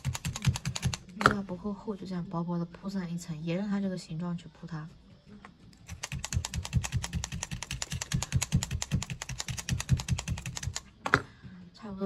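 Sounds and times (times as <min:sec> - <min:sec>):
felting needles stabbing wool: 0:05.9 - 0:11.3.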